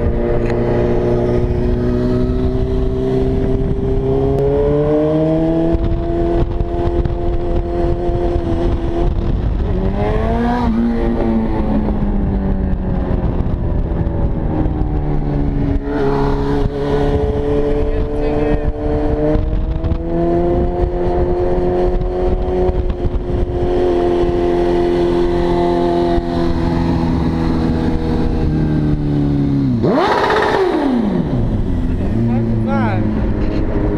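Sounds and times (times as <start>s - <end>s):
motorcycle engine revving: 0.0s - 33.9s
road rumble: 0.0s - 33.9s.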